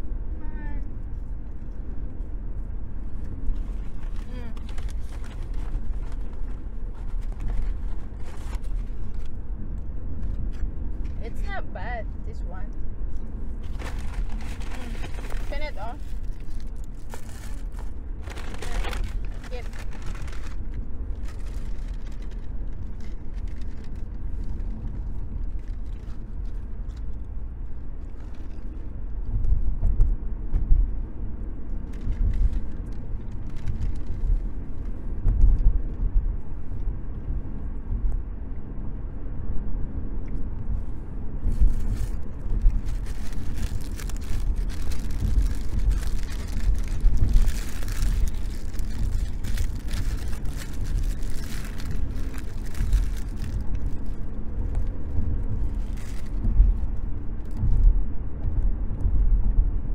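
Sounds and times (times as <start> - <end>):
car cabin road and engine rumble: 0.0 - 59.9
paper rustling: 3.5 - 9.3, 13.6 - 26.2, 41.5 - 54.2.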